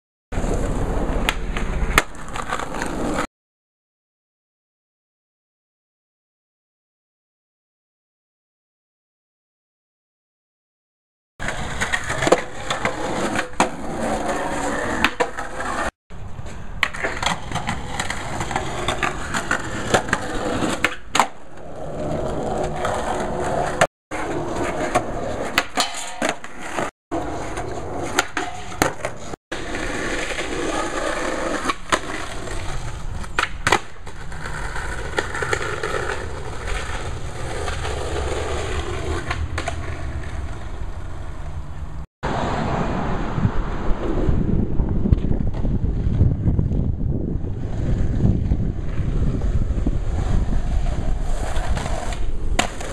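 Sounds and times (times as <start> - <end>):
skateboard popping and landing: 0.4 - 3.3, 11.4 - 42.8, 45.0 - 52.9
skateboard wheels rolling: 0.4 - 3.3, 11.4 - 52.9.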